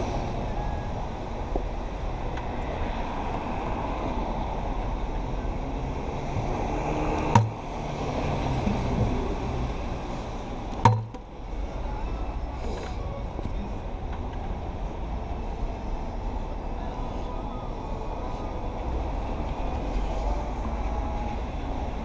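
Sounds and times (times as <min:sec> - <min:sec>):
traffic on wet pavement: 0:00.0 - 0:22.0
sharp knock: 0:10.8 - 0:11.2.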